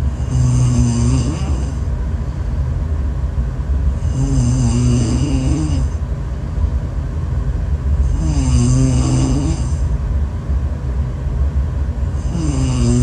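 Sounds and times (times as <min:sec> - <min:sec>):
woman snoring: 0:00.2 - 0:01.8, 0:04.0 - 0:06.0, 0:08.0 - 0:09.9, 0:12.2 - 0:13.0.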